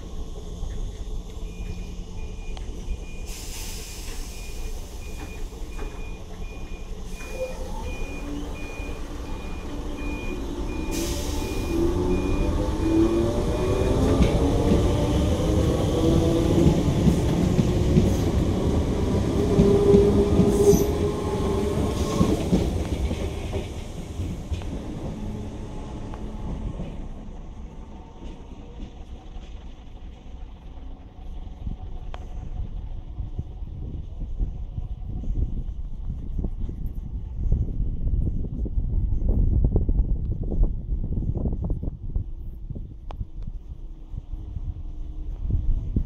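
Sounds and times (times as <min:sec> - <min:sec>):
train wheel and carriage noise: 0:00.0 - 0:46.0
electric train motor whine: 0:04.5 - 0:22.1.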